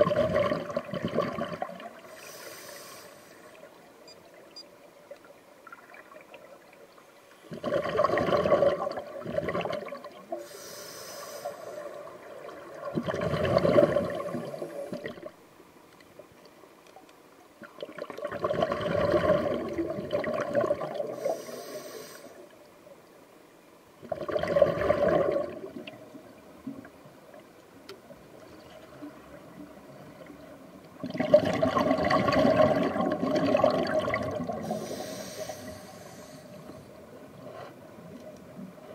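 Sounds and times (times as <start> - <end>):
diver exhaling bubbles underwater: 0.0 - 2.0, 7.5 - 10.3, 12.5 - 15.3, 17.8 - 21.3, 24.0 - 26.0, 31.0 - 35.0
regulator inhalation hiss: 2.0 - 3.6, 10.4 - 12.0, 21.2 - 22.5, 34.6 - 36.9.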